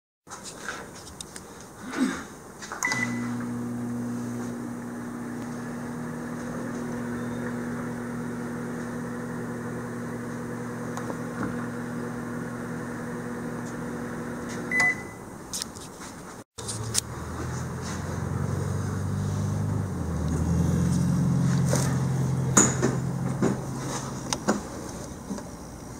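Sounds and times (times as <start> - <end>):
short keypad beeps: 2.8 - 3.3, 14.7 - 15.2
microwave oven humming: 2.8 - 15.2.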